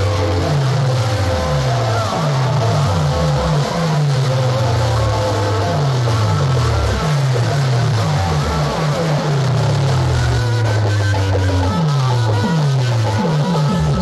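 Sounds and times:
heavy bass through loudspeakers: 0.0s - 14.0s.

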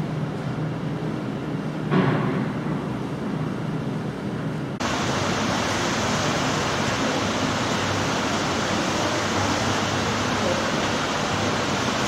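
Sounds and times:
wind: 0.0s - 12.0s
sea water rushing: 4.8s - 12.0s.

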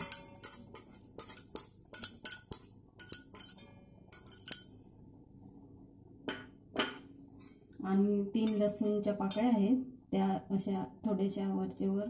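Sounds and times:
glass bowl clinking against metal: 0.0s - 4.7s.

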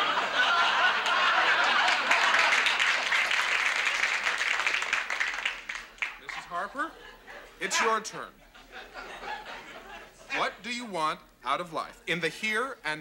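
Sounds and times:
audience laughing: 0.0s - 3.4s, 6.2s - 10.6s
audience applauding: 0.0s - 6.7s.

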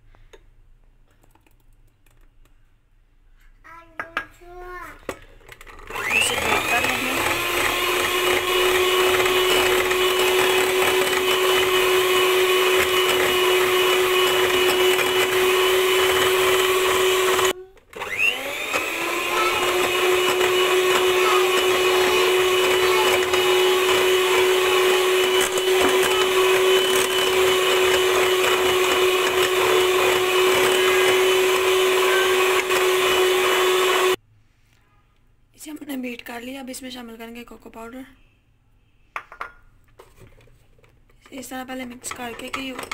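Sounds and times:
electric hand mixer whipping: 5.8s - 34.2s.

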